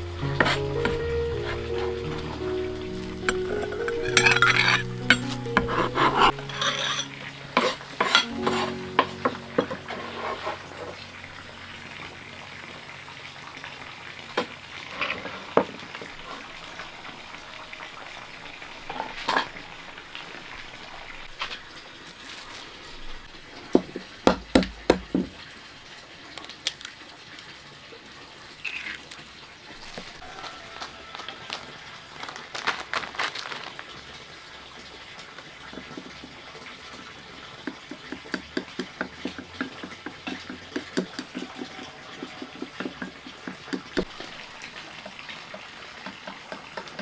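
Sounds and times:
food sizzling in a pan: 0:00.0 - 0:24.2
utensil clinking on pan: 0:03.3 - 0:05.4, 0:06.2 - 0:08.6.

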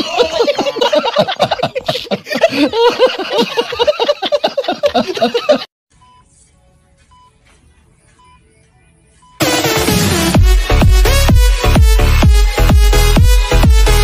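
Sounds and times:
men laughing loudly: 0:00.0 - 0:05.7.

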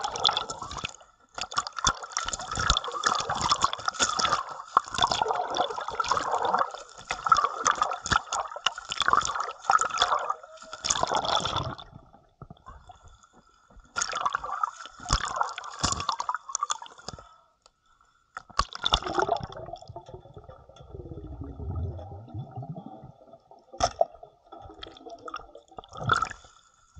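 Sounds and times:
muffled underwater bubbling: 0:00.0 - 0:13.2, 0:18.5 - 0:26.5
water splashing and sloshing: 0:00.0 - 0:17.4, 0:18.3 - 0:26.9.

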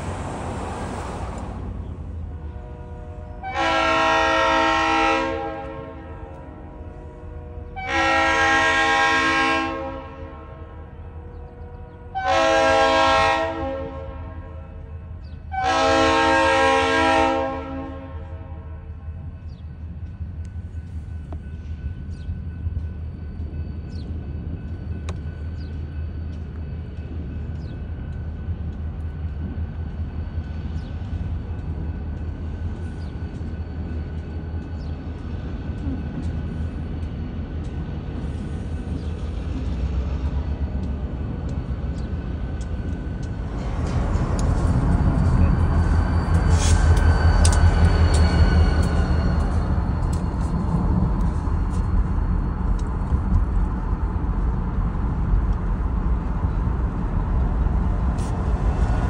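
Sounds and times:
low rumble of approaching train: 0:00.0 - 0:59.0
train air horn blasts: 0:02.3 - 0:14.9, 0:15.5 - 0:18.9.

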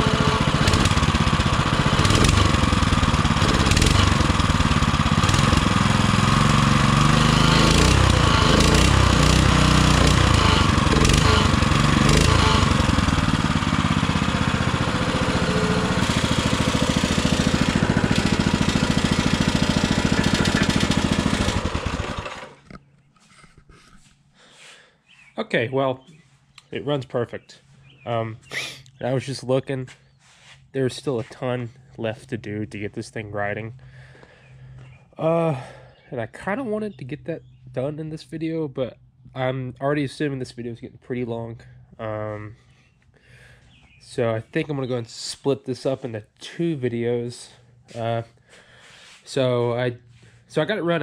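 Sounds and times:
small engine with raspy exhaust: 0:00.0 - 0:23.1, 0:33.7 - 0:36.7, 0:41.5 - 0:46.3, 0:47.2 - 0:51.0.

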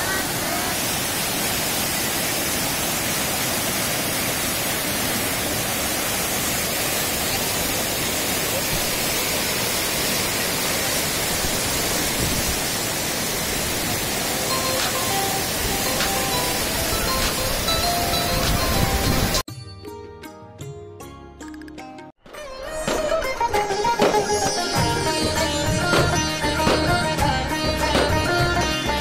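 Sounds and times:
floodwater roaring: 0:00.0 - 0:19.4
music: 0:14.4 - 0:29.0.

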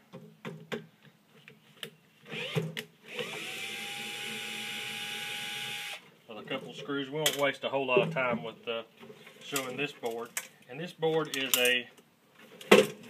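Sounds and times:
cordless drill motor whining: 0:02.3 - 0:06.0.

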